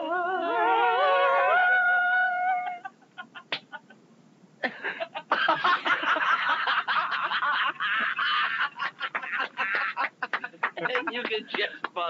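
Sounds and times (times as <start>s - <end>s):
people laughing: 4.6s - 11.9s.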